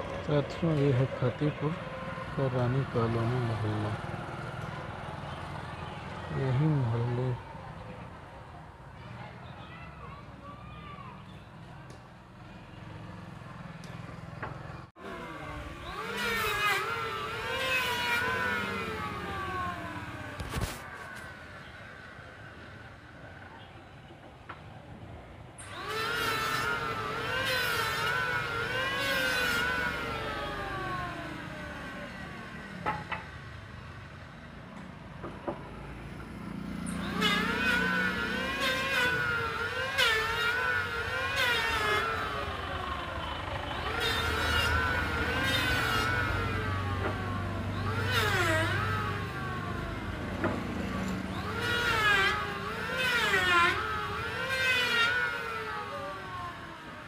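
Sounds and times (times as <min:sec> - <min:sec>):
electric hand planer cutting wood: 0:15.0 - 0:20.8, 0:25.6 - 0:33.2, 0:36.7 - 0:57.0.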